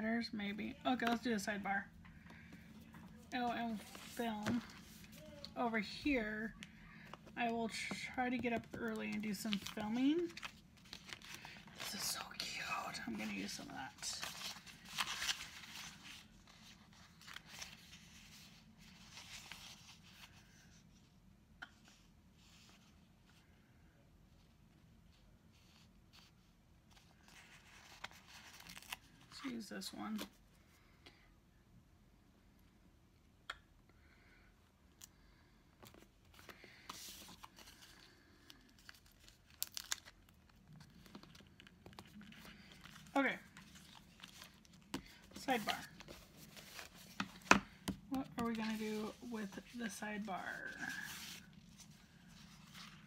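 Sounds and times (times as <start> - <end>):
paper sticker sheets rustling: 3.5 - 6.2, 7.0 - 20.3, 35.8 - 53.0.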